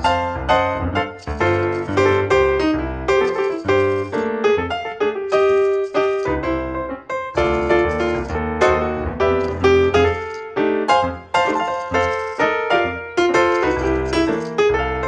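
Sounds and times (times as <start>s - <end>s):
piano music: 0.0s - 15.0s.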